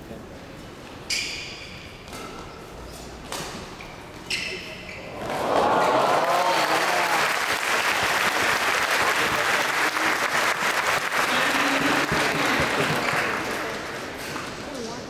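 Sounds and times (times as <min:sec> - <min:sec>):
voices cheering: 0:05.2 - 0:07.7
crowd applauding: 0:05.3 - 0:14.2.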